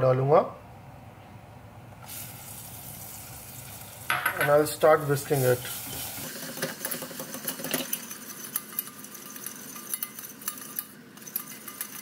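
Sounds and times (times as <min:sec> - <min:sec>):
whisk clicking and scraping pan: 0:05.0 - 0:12.0.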